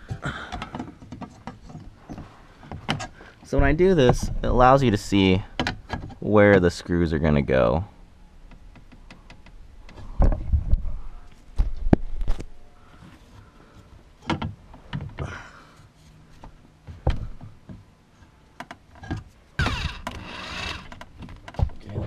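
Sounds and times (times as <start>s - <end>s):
handling knocks and thumps: 0.0s - 6.7s, 8.4s - 12.5s, 14.2s - 15.5s, 16.3s - 17.9s, 20.9s - 22.0s
cordless drill whirring: 19.6s - 20.9s.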